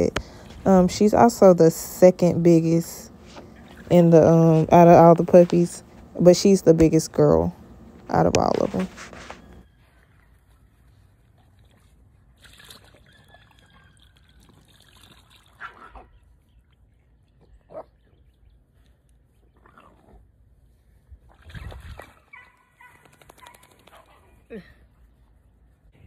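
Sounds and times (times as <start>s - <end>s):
water splashing and dripping: 11.5s - 15.8s.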